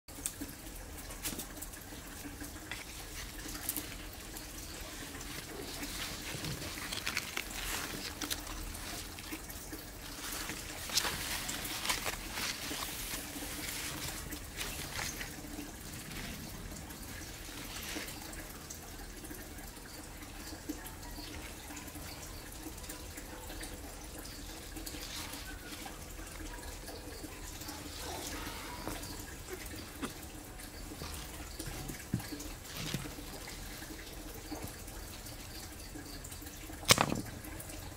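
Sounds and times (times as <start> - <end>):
light rustling: 2.6 - 18.5.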